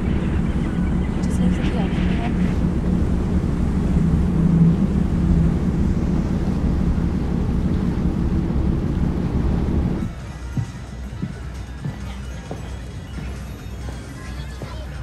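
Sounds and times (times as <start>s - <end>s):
sea noise: 0.0s - 10.1s
ferry engines rumbling: 0.0s - 15.0s
wind: 0.0s - 15.0s.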